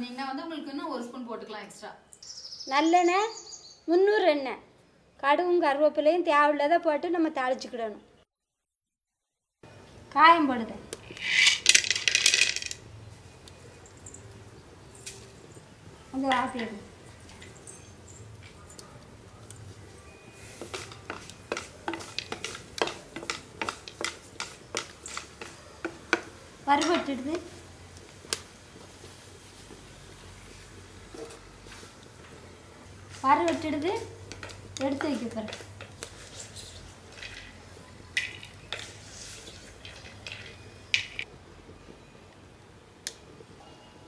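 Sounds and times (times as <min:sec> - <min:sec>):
spatula scraping in a clay pot: 0:11.1 - 0:11.7, 0:20.4 - 0:26.3, 0:33.1 - 0:37.6, 0:38.4 - 0:40.6
spices crackling in hot oil: 0:12.8 - 0:43.5.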